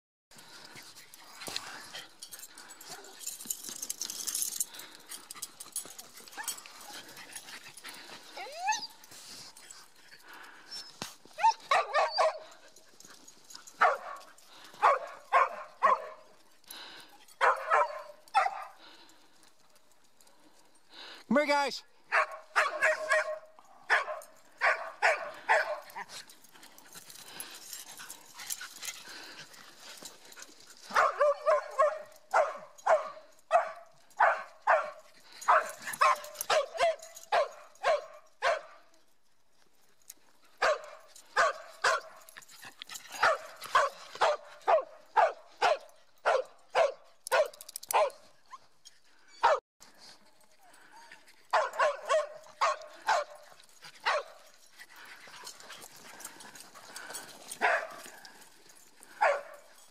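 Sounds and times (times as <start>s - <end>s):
dog barking: 11.7s - 12.5s, 13.8s - 14.2s, 14.8s - 16.2s, 17.4s - 18.8s, 22.1s - 25.8s, 30.9s - 38.8s, 40.6s - 42.1s, 43.2s - 48.2s, 51.5s - 53.4s, 54.0s - 54.3s, 57.6s - 58.0s, 59.2s - 59.6s.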